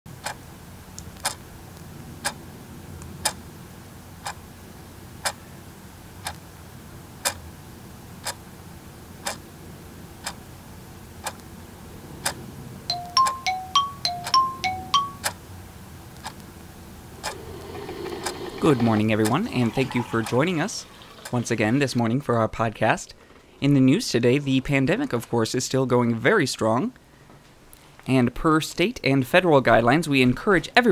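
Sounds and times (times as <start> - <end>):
wall clock ticking: 0.2 - 0.4, 1.2 - 1.4, 9.2 - 9.4, 11.2 - 11.4, 12.2 - 15.4, 17.2 - 21.7.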